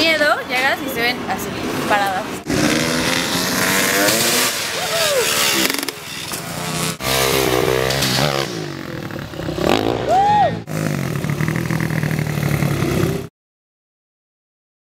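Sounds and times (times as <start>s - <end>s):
motorbike engine revving: 1.6s - 13.3s.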